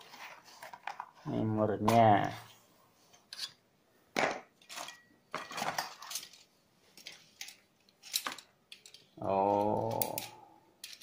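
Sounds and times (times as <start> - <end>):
metal rods clinking and rattling: 4.6 - 9.1, 9.8 - 11.0.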